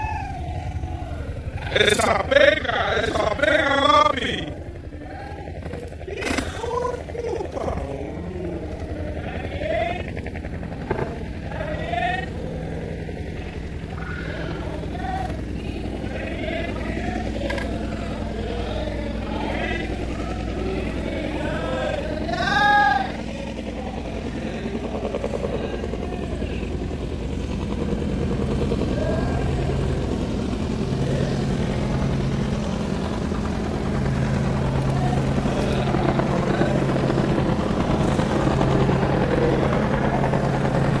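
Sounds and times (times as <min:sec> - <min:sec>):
loud wavering pitched call: 0:00.0 - 0:10.2
engine idling: 0:00.0 - 0:41.0.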